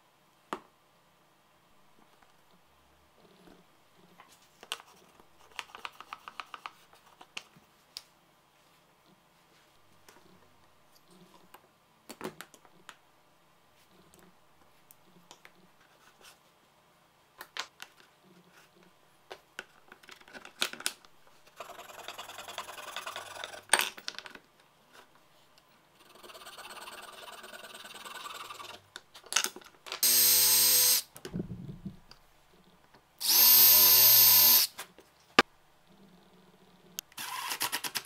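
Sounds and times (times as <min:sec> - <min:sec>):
cordless drill whine: 0:30.0 - 0:31.1, 0:33.2 - 0:34.7.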